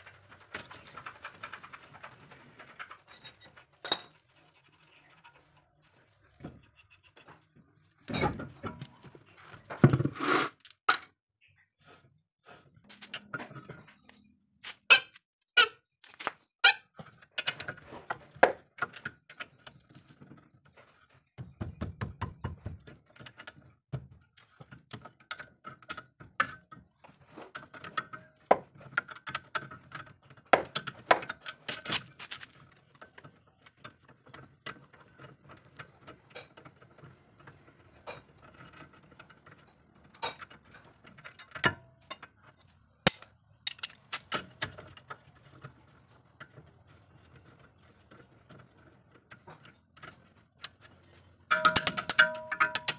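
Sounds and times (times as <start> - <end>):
steel socket clinking: 51.5 - 52.9.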